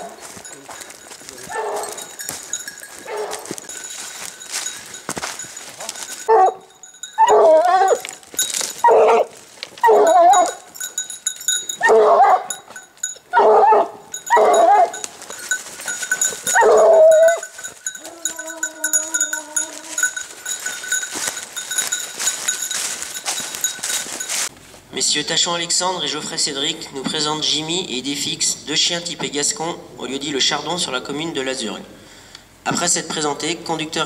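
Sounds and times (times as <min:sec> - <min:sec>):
hound baying: 0:00.0 - 0:24.5.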